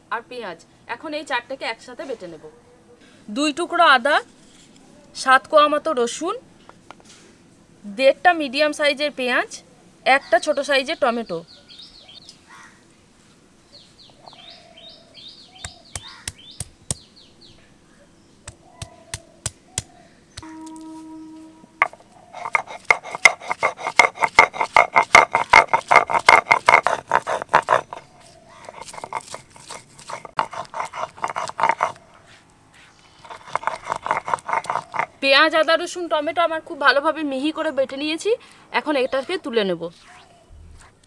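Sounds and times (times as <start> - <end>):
stone-on-stone grinding: 21.8 - 32.0, 33.1 - 35.1.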